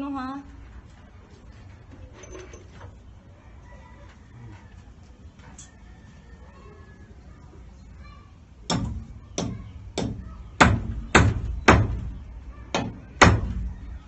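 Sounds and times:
hammer striking timber: 8.7 - 13.7.

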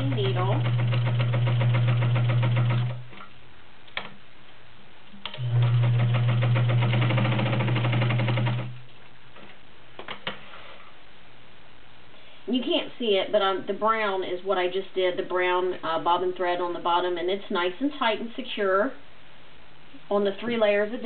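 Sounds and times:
sewing machine sewing: 0.0 - 3.0, 5.3 - 8.8.

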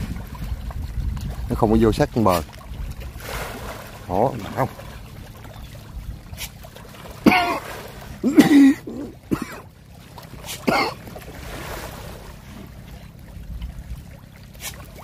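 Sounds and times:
person clearing throat and coughing: 7.2 - 9.7, 10.5 - 11.0.

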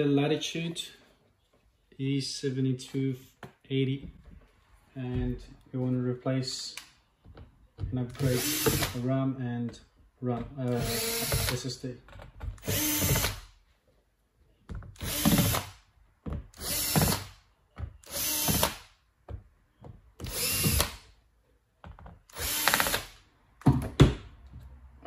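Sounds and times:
cordless drill motor whirring: 10.7 - 11.5, 20.2 - 20.9, 22.3 - 23.2.

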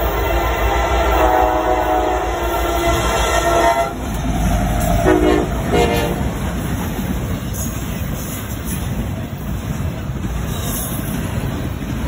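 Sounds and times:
locomotive air horn: 0.0 - 4.1, 5.0 - 6.4
locomotive engines and wheels rumbling: 0.0 - 12.0.

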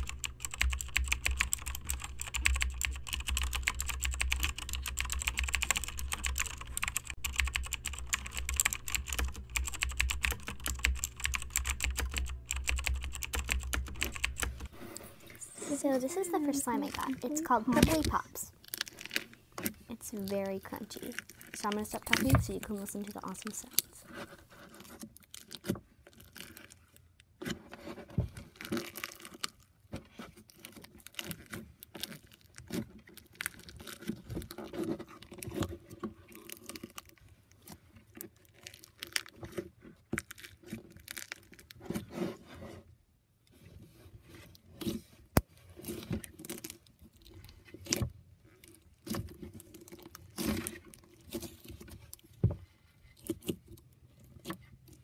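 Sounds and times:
fingers squeezing crunchy slime: 15.4 - 24.0, 24.8 - 27.1, 28.3 - 42.0, 44.8 - 52.3.

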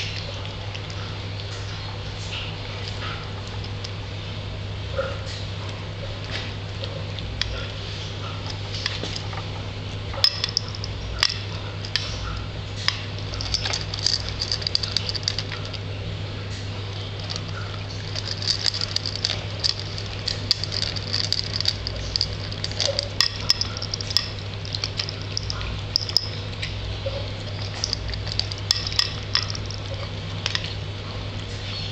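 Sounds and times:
steady low hum: 0.0 - 31.9
cat crunching dry food: 6.8 - 15.9, 16.8 - 31.4
kibble clinking against bowl: 10.2 - 15.8, 17.0 - 30.8.

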